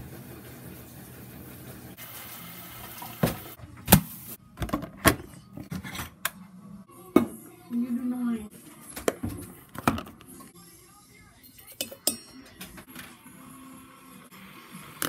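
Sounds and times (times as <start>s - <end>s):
washing machine humming: 0.0s - 6.0s.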